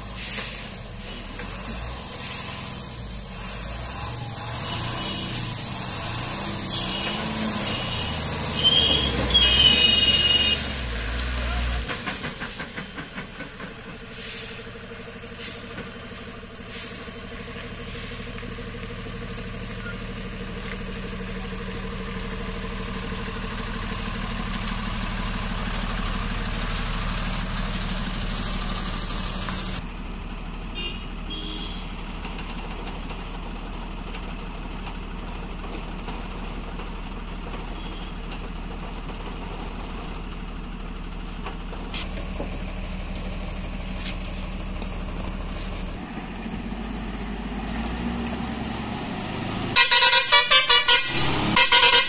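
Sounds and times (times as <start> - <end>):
air-brake hisses: 0.0 - 29.8
engine idling: 0.0 - 48.4
lorry diesel engine running: 0.0 - 52.0.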